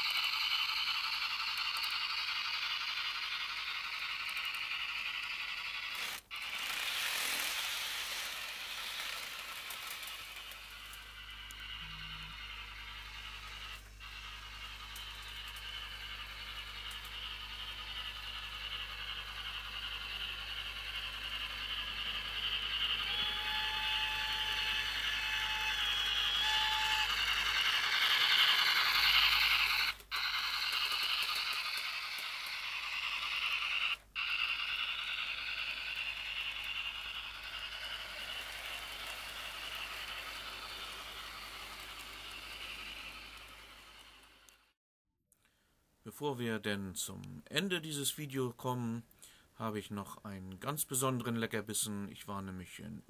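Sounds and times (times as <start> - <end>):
model train wheels rattling on rails: 0.0 - 44.7
whistle-like tone: 22.5 - 30.5.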